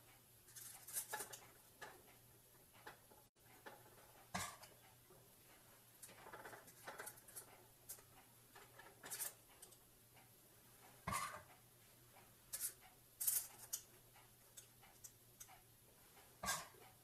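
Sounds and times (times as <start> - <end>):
metal scoop scraping and tapping: 0.5 - 2.0, 6.0 - 9.8, 11.1 - 11.5, 12.5 - 15.5.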